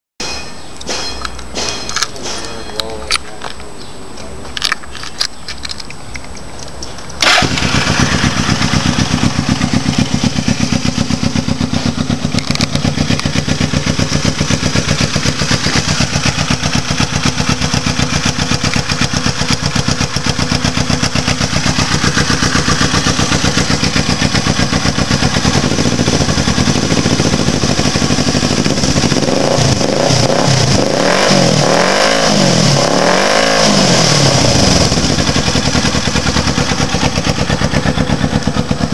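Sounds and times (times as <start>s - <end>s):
electric starter cranking: 7.2s - 9.3s
motorcycle engine running: 7.2s - 38.9s.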